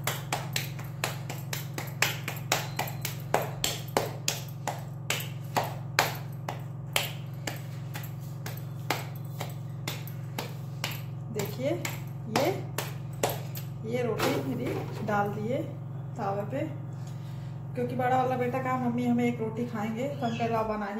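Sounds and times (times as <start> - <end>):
hands patting dough: 0.0 - 13.8
steady low hum: 0.0 - 20.9.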